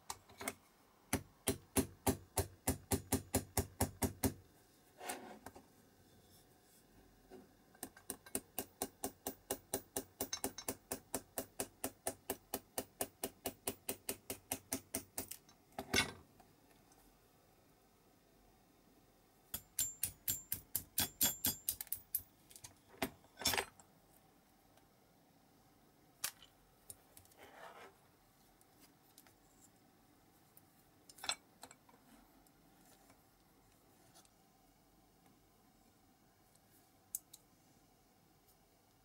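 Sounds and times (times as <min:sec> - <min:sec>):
small metal parts clicking: 0:19.6 - 0:22.7.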